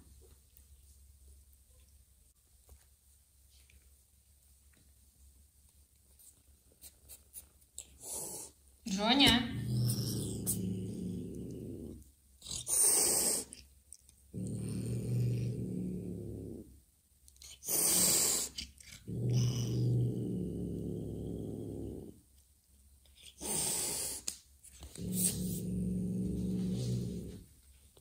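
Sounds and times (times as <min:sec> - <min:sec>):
cat hissing: 0:06.8 - 0:08.6, 0:09.5 - 0:13.7, 0:17.4 - 0:19.9, 0:23.2 - 0:27.4
cat growling low: 0:07.9 - 0:08.6, 0:09.5 - 0:13.7, 0:14.3 - 0:16.8, 0:17.4 - 0:22.2, 0:23.2 - 0:27.5.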